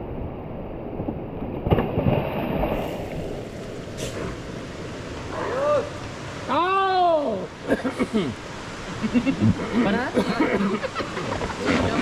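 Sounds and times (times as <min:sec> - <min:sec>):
river water rushing and splashing: 0:00.0 - 0:12.0.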